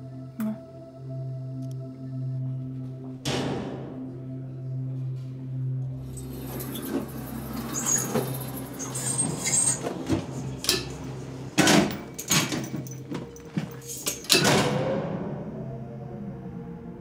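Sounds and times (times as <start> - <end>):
loud clunk: 3.2 - 4.2, 11.6 - 15.3
machinery clicking and squeaking: 6.1 - 15.0.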